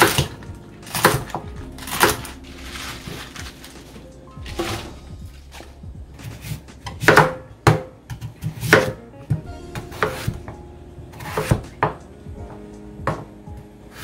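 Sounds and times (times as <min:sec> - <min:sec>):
knife chopping on cutting board: 0:00.0 - 0:02.3, 0:06.2 - 0:09.0, 0:09.8 - 0:10.5, 0:11.1 - 0:12.0.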